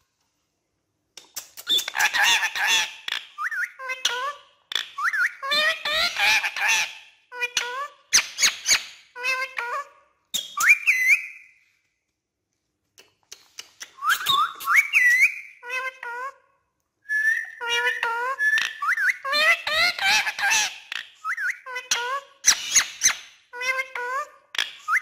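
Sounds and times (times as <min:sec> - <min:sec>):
parakeet chattering: 0:01.3 - 0:09.9, 0:17.6 - 0:24.8
parakeet whistling: 0:05.0 - 0:06.2, 0:10.4 - 0:11.5, 0:14.0 - 0:15.6, 0:17.1 - 0:23.2.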